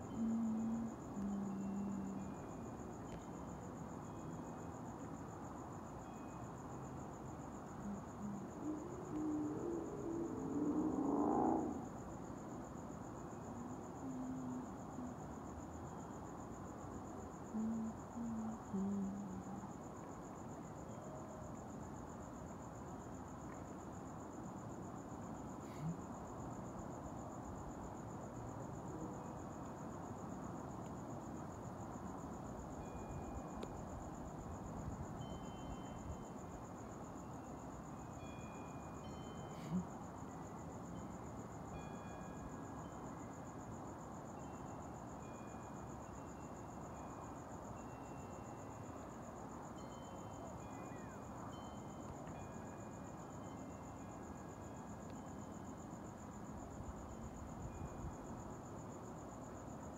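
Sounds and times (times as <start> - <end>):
faint low tones: 0.0 - 4.7, 7.6 - 12.5
crickets chirping: 0.0 - 59.9
low background noise: 0.0 - 59.9.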